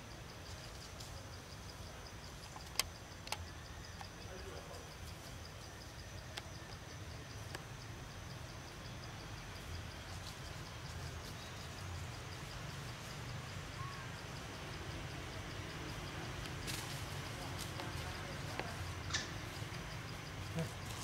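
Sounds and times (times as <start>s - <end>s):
insect chirping: 0.0s - 21.0s
faint clicks: 2.4s - 4.1s.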